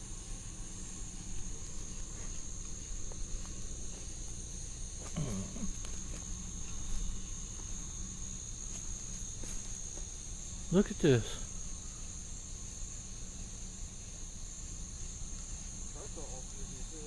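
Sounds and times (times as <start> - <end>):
crickets chirring: 0.0 - 17.0.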